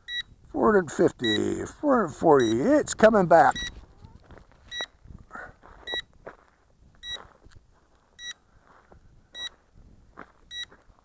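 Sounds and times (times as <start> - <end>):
remote controller beeping: 1.2 - 1.6, 2.3 - 2.8, 3.4 - 3.8.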